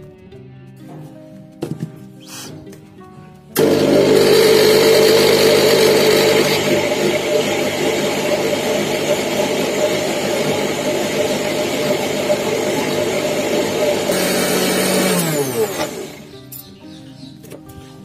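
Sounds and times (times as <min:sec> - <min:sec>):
mixer grinder motor running: 0:03.6 - 0:16.3.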